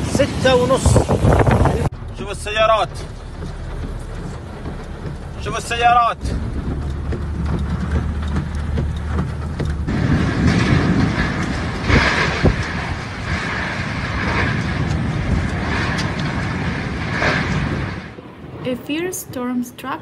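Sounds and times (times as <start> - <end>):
storm wind blowing hard: 0.0 - 19.4
car interior hum: 0.1 - 13.2.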